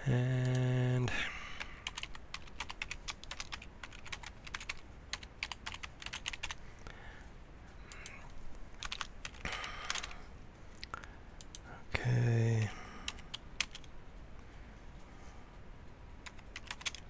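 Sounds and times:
computer keyboard typing: 0:00.2 - 0:00.8, 0:01.6 - 0:06.6, 0:07.9 - 0:10.2, 0:12.6 - 0:13.9, 0:16.2 - 0:17.0.

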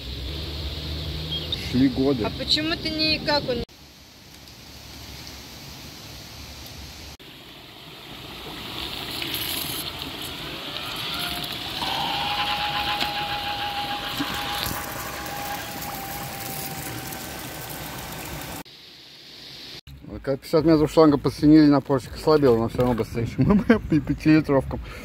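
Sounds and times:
rushing water: 0:03.8 - 0:18.7
water pump motor whine: 0:09.8 - 0:18.6.

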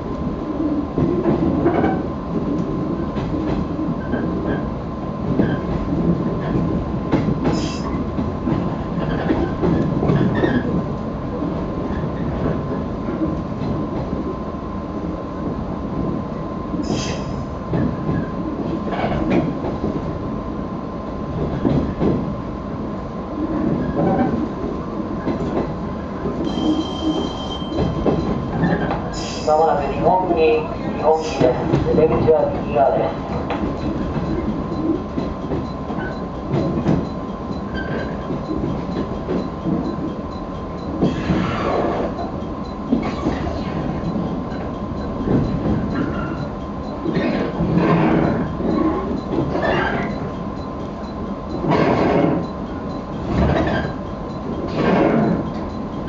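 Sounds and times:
train rumbling: 0:00.0 - 0:56.0.

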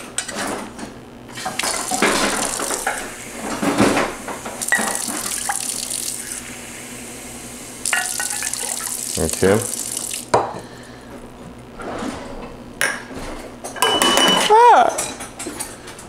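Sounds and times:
tap running water into cup: 0:04.6 - 0:06.2, 0:07.8 - 0:10.5.

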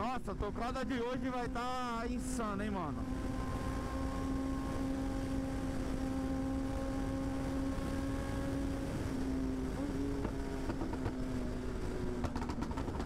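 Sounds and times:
motorcycle engine cruising: 0:00.0 - 0:13.0
exhaust pops: 0:12.2 - 0:13.0.

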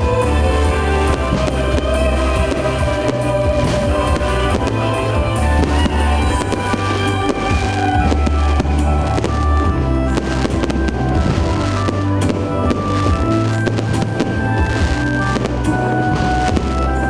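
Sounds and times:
fireworks bangs: 0:00.0 - 0:17.0
loud music: 0:00.0 - 0:17.0.

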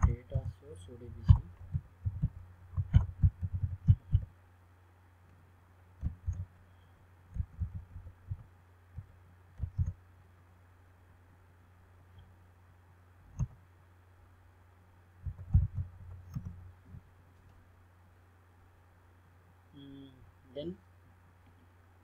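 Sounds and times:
faint low hum: 0:00.0 - 0:22.0
keyboard typing: 0:01.3 - 0:04.3, 0:06.0 - 0:06.5, 0:07.3 - 0:10.0, 0:15.2 - 0:16.6.

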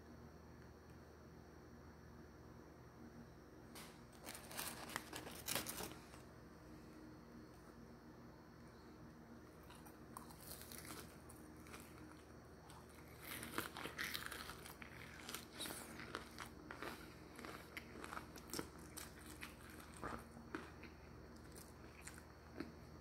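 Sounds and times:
crunching fried chicken: 0:03.8 - 0:06.3, 0:09.4 - 0:23.0
paper bag crinkling: 0:03.8 - 0:06.3.

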